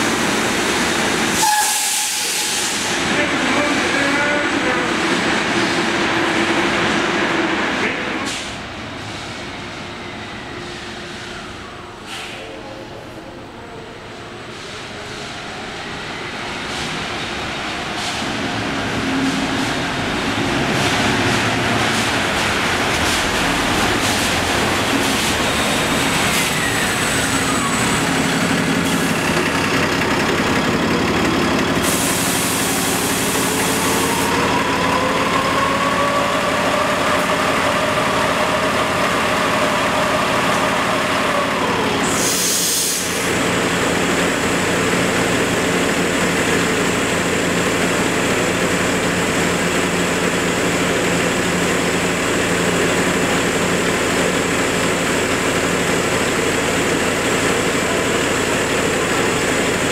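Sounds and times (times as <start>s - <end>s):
bus engine running with whine: 19.0s - 59.9s.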